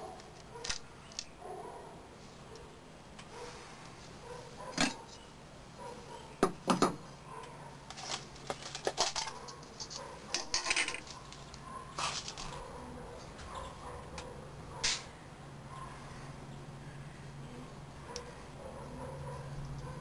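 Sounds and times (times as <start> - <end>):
spoon scraping through crystals: 8.0 - 12.6.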